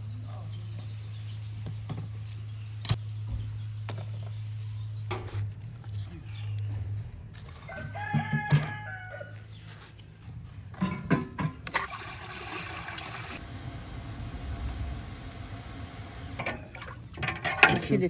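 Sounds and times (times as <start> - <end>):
rooster crowing: 7.6 - 9.5.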